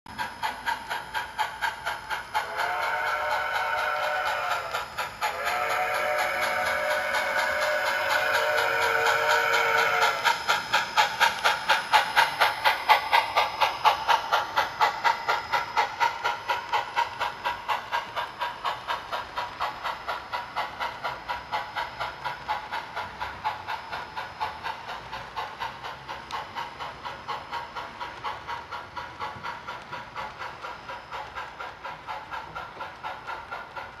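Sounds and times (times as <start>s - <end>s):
steam exhaust chuffs: 0.1s - 34.0s
model steam whistle: 1.9s - 14.6s.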